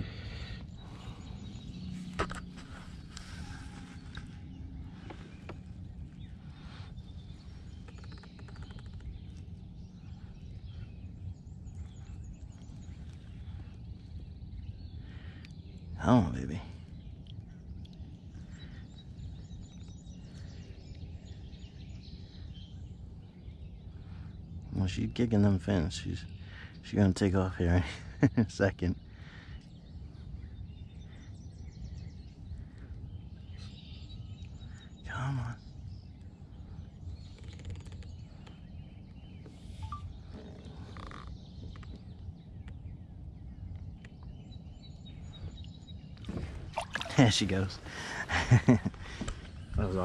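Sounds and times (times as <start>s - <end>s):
birds chirping: 0.0s - 50.0s
low outdoor rumble: 0.0s - 50.0s
faint ticks: 37.3s - 38.6s
small water sounds: 45.5s - 48.0s.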